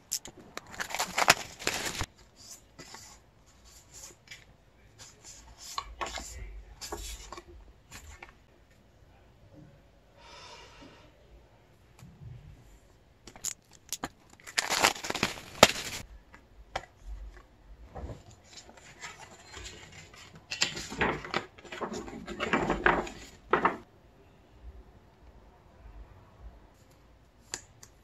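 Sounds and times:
paper and card rustling: 0.0s - 8.4s, 13.3s - 16.0s, 18.4s - 23.8s.

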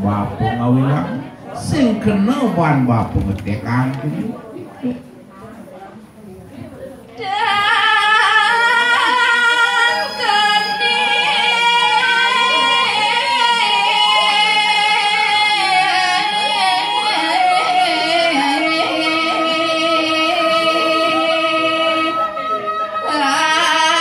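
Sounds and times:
woman singing into microphone: 7.1s - 24.0s.

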